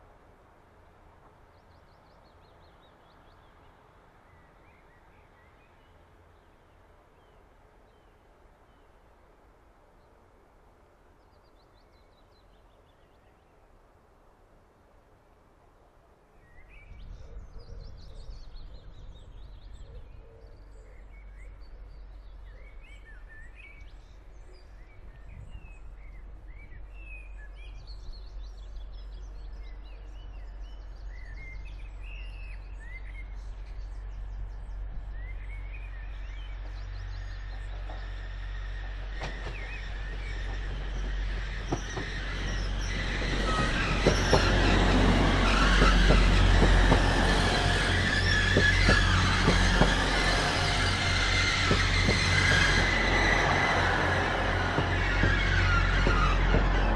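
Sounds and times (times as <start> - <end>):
approaching train rumble: 16.6 - 56.9
birds chirping and singing: 39.0 - 56.9.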